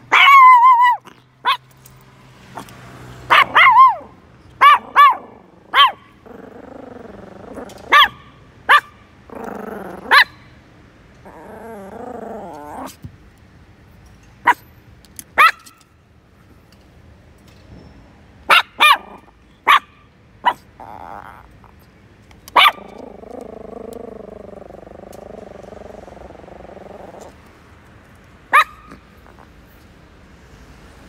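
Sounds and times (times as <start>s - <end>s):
small dog yapping: 0.0s - 1.8s, 3.3s - 10.5s, 15.4s - 15.8s, 18.5s - 21.8s, 22.5s - 27.4s, 28.5s - 29.5s
dog growling: 4.8s - 7.9s, 9.3s - 10.2s, 11.2s - 13.0s, 20.8s - 21.8s, 22.8s - 27.4s.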